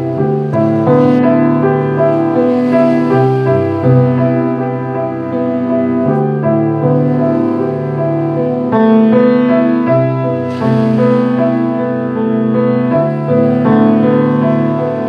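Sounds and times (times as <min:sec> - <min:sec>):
slow piano music: 0:00.0 - 0:15.0.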